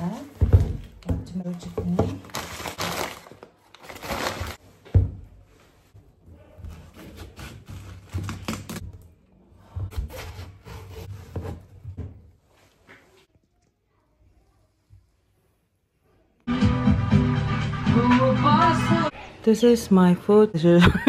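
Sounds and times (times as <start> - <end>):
knocks and rustling of handling: 0.0 - 7.4.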